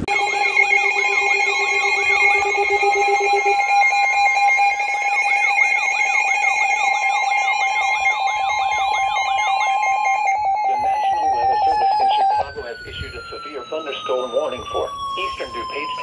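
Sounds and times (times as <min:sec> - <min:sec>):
rapid beeping: 0:00.0 - 0:16.0
steady alarm tone: 0:00.0 - 0:16.0
warbling chirp: 0:00.0 - 0:16.0.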